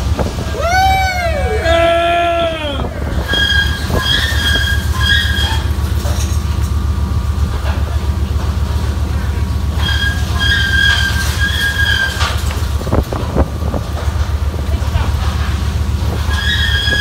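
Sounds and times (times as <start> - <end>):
boat engine rumbling: 0.0 - 17.0
high-pitched squeals: 0.5 - 5.8.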